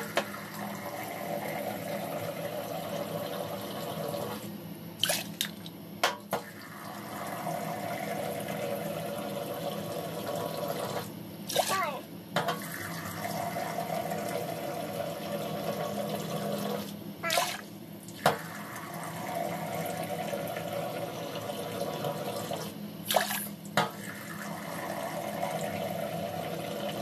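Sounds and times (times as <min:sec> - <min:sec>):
water splashing into a pot: 0:17.3 - 0:18.5.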